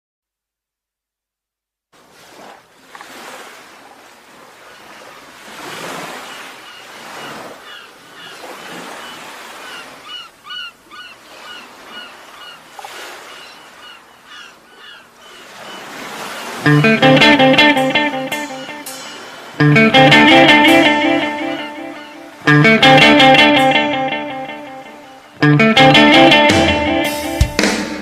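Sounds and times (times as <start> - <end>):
sea waves washing on shore: 2.0 - 28.0
birds calling: 5.9 - 28.0.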